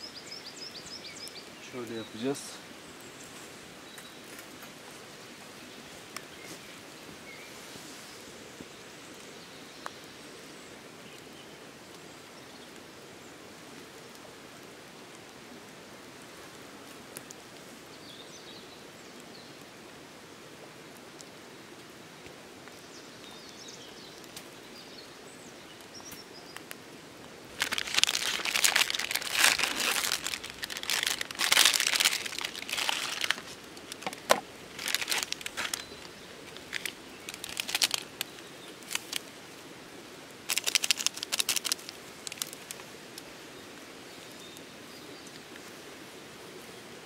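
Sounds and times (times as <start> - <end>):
paper towel crinkling: 27.5 - 38.2, 40.5 - 42.7.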